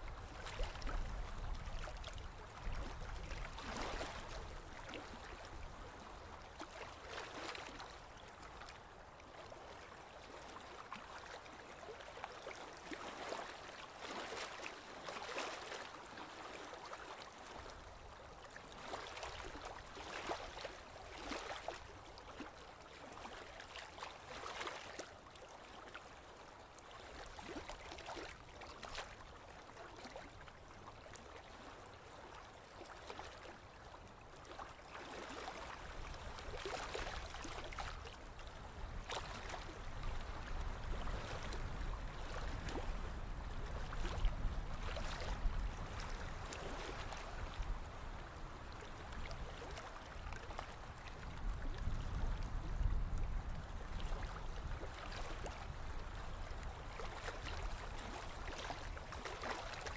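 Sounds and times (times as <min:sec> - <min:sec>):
water splashing along boat hull: 0:54.0 - 0:59.9.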